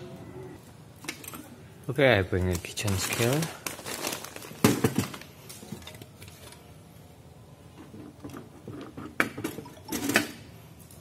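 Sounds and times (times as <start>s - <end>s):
plastic tray rustling: 2.5s - 6.6s.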